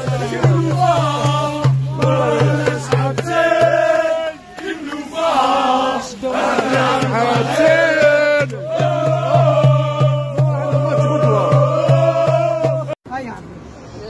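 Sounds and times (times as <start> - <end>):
men chanting a song: 0.0 - 13.0
steady low beat: 0.0 - 13.0.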